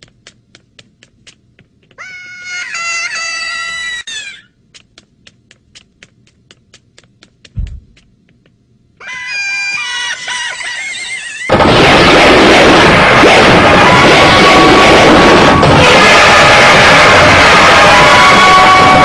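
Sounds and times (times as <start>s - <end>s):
squeaky cartoon gibberish voices: 2.0s - 4.5s, 9.0s - 11.5s
quick light ticks: 4.7s - 8.6s
dull thump: 7.5s - 8.0s.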